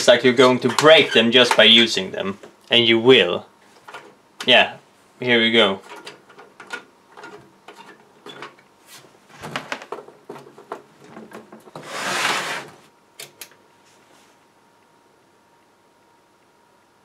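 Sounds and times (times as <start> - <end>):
metal case scraping on wooden bench: 11.7 - 12.9.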